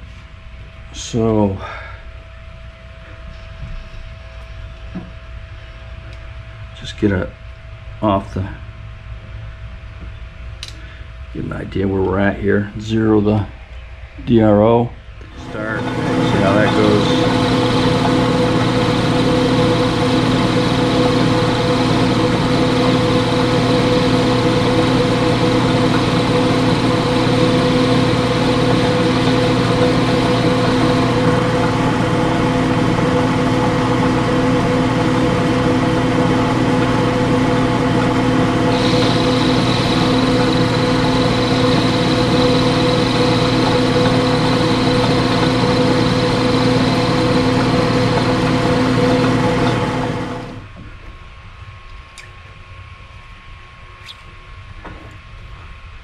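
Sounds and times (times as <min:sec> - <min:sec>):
lathe motor humming: 0:15.2 - 0:50.7.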